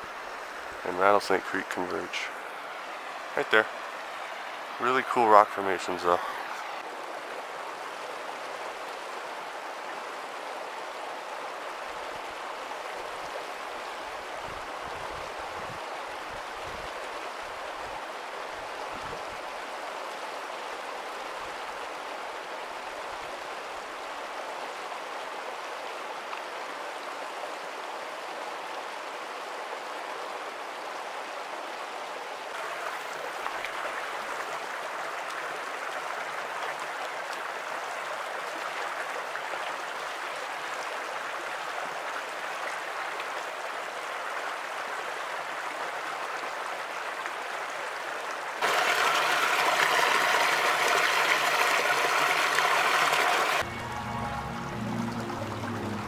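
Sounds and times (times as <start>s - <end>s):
creek water running over rocks: 0.0s - 56.0s
water pouring into foaming pool: 48.6s - 53.7s.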